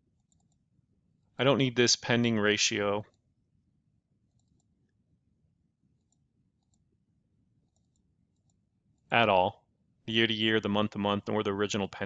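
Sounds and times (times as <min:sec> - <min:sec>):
faint computer mouse clicks: 0:04.3 - 0:04.7.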